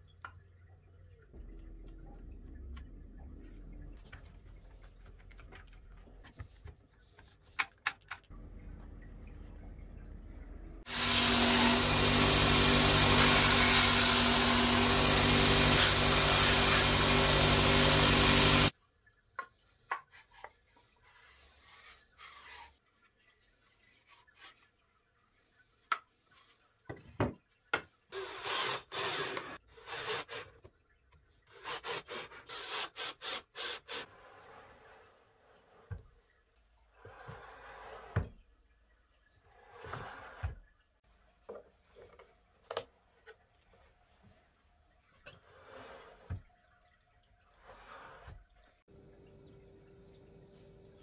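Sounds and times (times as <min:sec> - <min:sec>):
power tool running on wood: 0:10.9 - 0:18.7.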